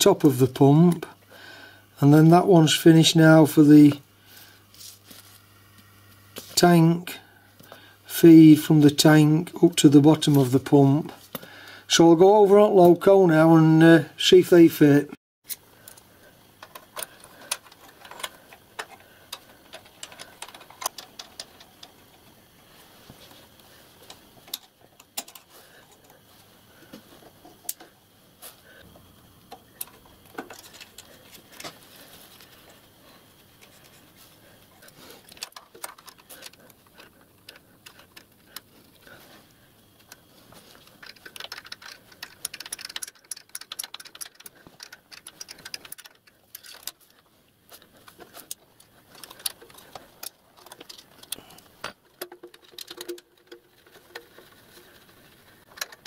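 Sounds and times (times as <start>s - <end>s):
metallic clicks and taps: 40.9s - 47.0s.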